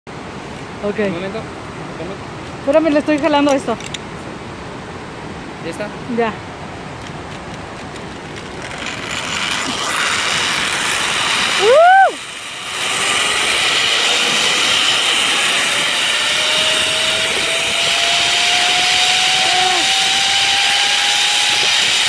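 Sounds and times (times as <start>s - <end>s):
rushing wind: 0.1s - 22.0s
zipline pulleys on steel cable: 7.8s - 22.0s
faint rising whine: 8.3s - 22.0s
person crying out: 11.6s - 12.2s, 19.2s - 20.2s.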